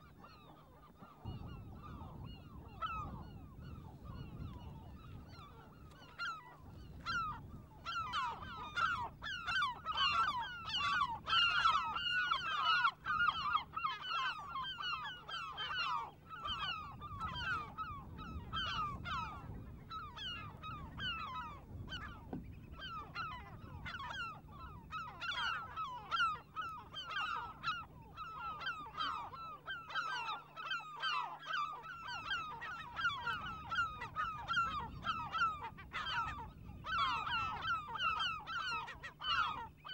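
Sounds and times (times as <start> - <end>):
flock of birds calling: 0.0 - 39.9.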